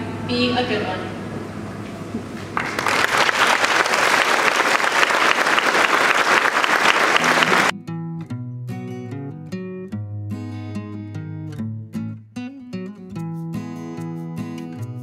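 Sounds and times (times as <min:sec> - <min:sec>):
audience applauding: 0:02.4 - 0:07.7
strummed acoustic guitar music: 0:07.2 - 0:15.0.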